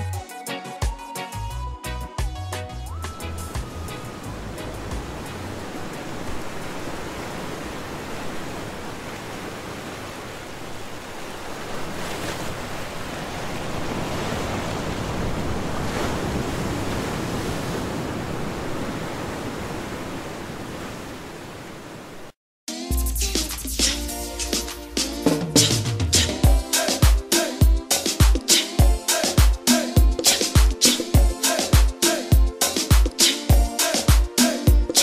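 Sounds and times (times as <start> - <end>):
rushing water: 2.9 - 22.4.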